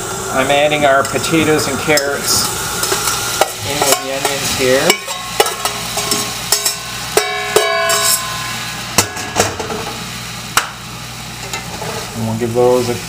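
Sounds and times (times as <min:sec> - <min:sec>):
frying pan sizzling: 0:00.0 - 0:13.0
sharp metal clanks: 0:02.8 - 0:09.8
spoon scraping metal pan: 0:07.5 - 0:08.4.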